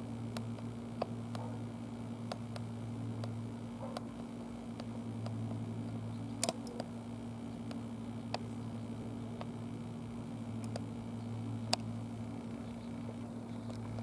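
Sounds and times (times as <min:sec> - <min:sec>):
low mechanical hum: 0:00.0 - 0:14.0
small clicks and ticks: 0:00.3 - 0:01.5, 0:02.2 - 0:05.6, 0:06.2 - 0:06.9, 0:10.6 - 0:14.0.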